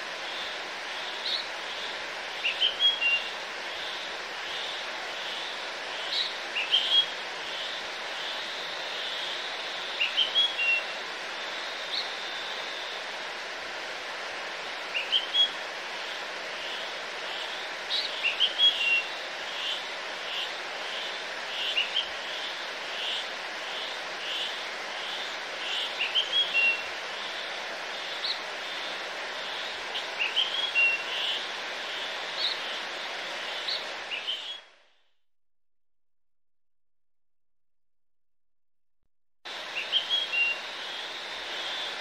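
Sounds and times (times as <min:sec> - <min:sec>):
hiss-like outdoor ambience: 0:00.0 - 0:35.1, 0:39.5 - 0:42.0.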